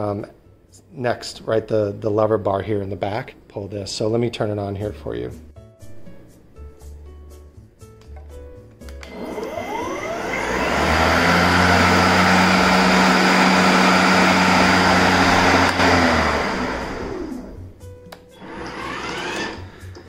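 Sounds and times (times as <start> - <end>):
lawn mower motor whine: 9.0 - 17.7, 18.4 - 20.0
faint rising and falling whir: 9.0 - 17.8, 18.4 - 20.0.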